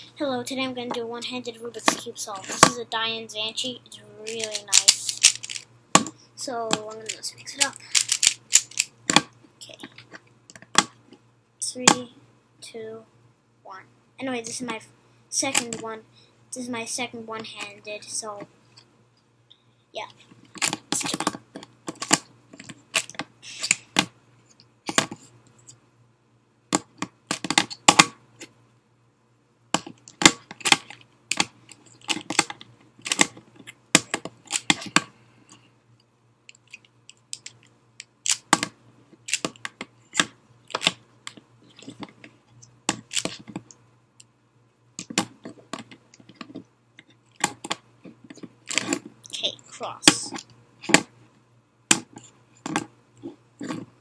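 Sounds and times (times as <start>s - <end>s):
plastic puzzle cube clicking: 4.3s - 5.6s, 7.1s - 8.9s, 36.6s - 38.7s, 39.3s - 41.0s.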